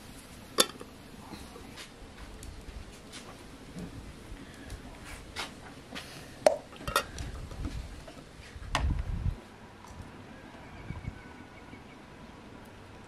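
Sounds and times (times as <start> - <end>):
glass jars clinking on metal pot: 0.6 - 0.8, 6.5 - 7.1.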